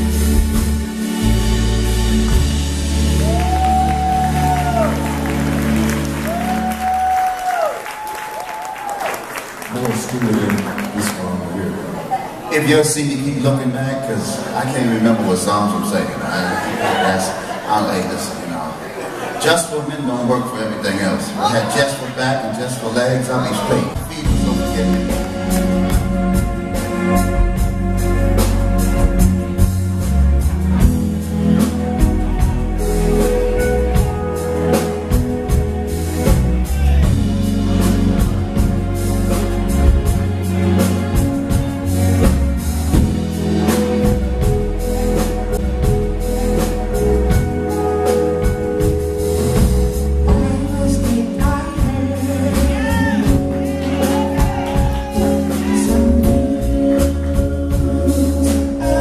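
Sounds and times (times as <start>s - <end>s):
keyboard and guitar chords: 0.0s - 7.4s, 23.4s - 59.0s
bass line: 0.0s - 7.8s, 23.5s - 59.0s
drum kit: 0.0s - 9.0s, 23.6s - 59.0s.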